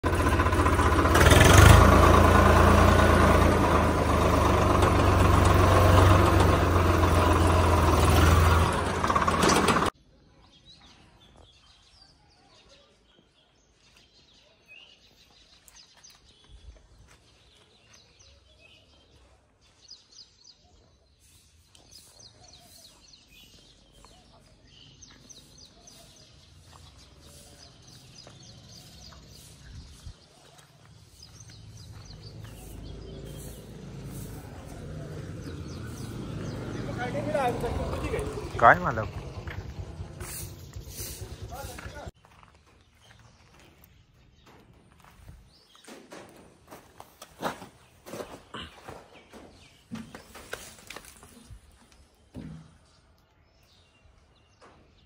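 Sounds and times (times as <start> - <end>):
diesel tractor engine running: 0.0 - 10.0, 30.9 - 42.2.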